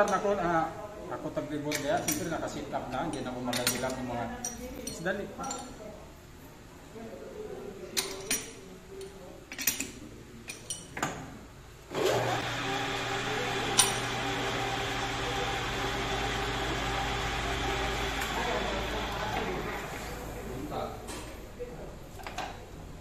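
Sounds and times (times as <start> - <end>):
metal lathe humming: 11.9 - 20.1.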